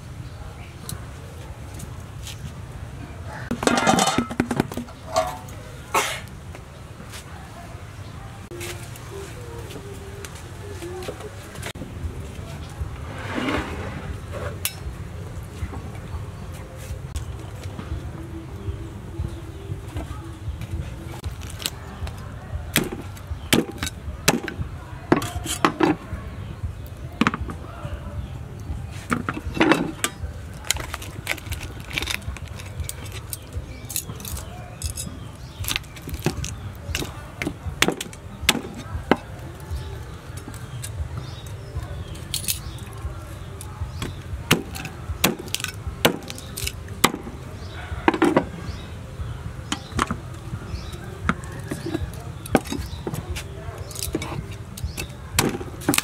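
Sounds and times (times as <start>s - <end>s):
steady low rumble: 11.4s - 21.4s
cleaver chopping on wooden block: 37.0s - 39.3s, 44.0s - 47.3s.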